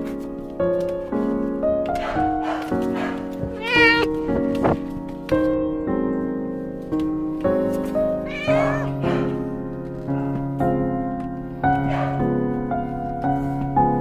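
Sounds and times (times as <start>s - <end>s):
soft piano music: 0.0s - 14.0s
cat meowing: 3.5s - 4.3s, 8.2s - 9.4s.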